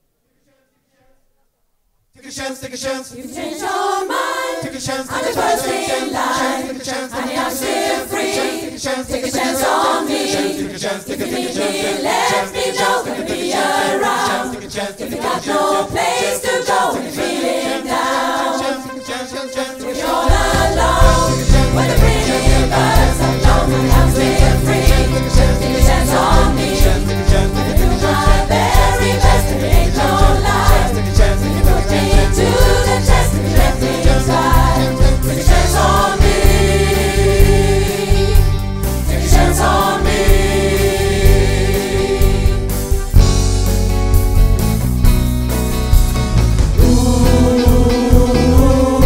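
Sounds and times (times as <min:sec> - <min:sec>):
choir singing: 0:02.2 - 0:43.2, 0:46.8 - 0:49.0
deep bass line and beat: 0:20.3 - 0:40.6.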